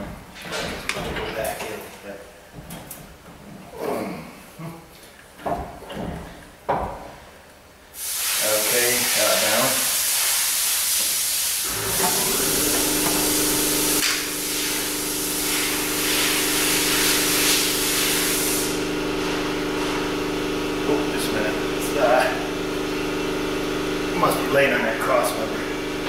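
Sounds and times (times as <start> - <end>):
loud steady hiss: 7.9 - 26.0
steady machine hum: 11.6 - 26.0.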